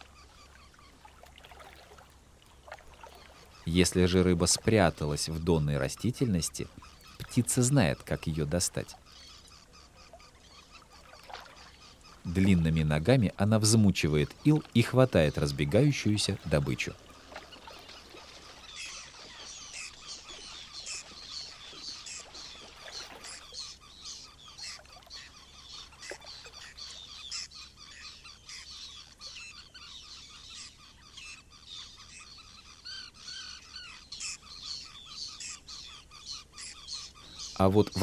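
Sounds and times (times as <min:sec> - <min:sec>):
marsh birds chirping and squawking: 0:00.0 - 0:38.0.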